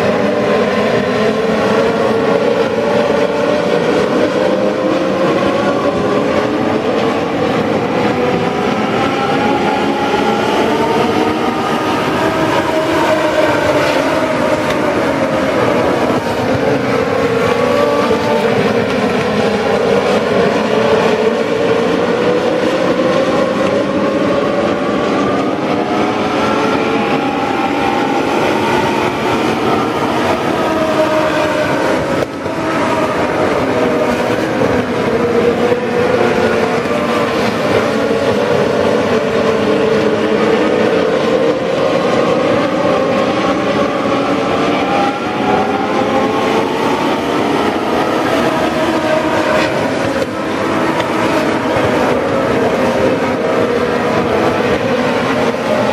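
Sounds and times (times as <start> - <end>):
race car engines droning: 0.0 - 55.9.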